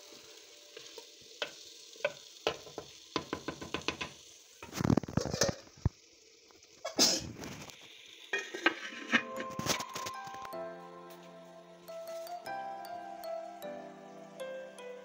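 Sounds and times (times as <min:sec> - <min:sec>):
light sizzle of frying: 0:00.0 - 0:15.0
spatula scraping pot: 0:08.4 - 0:10.2.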